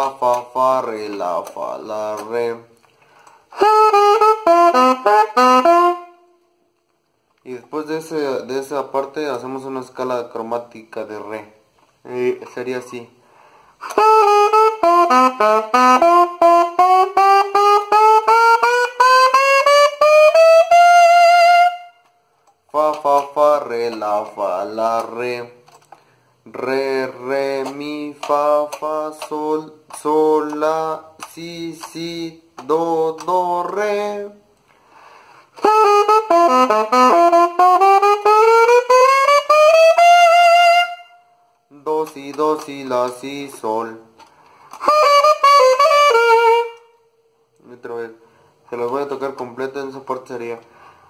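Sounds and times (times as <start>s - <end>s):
alto saxophone playing: 3.5s - 6.6s, 13.8s - 22.2s, 22.8s - 25.2s, 35.5s - 44.1s, 44.7s - 47.2s.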